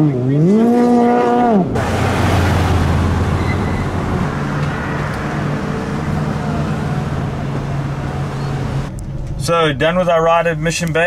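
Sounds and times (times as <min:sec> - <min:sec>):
jet ski engine revving: 0:00.0 - 0:03.4
noisy rumble with low drone: 0:02.7 - 0:11.0.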